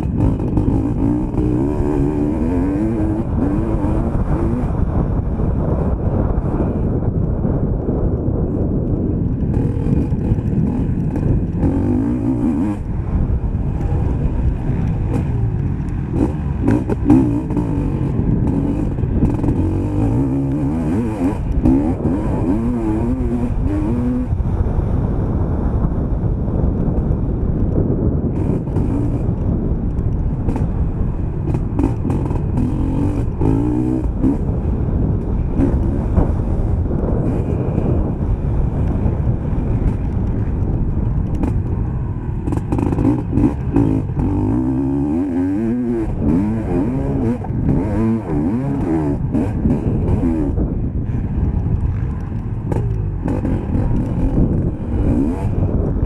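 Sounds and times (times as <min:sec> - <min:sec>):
motocross bike engine revving: 0:00.0 - 0:05.0, 0:09.3 - 0:13.0, 0:13.8 - 0:24.3, 0:28.4 - 0:29.4, 0:31.5 - 0:34.6, 0:35.5 - 0:38.2, 0:42.4 - 0:56.0
wind noise on microphone: 0:00.0 - 0:56.0.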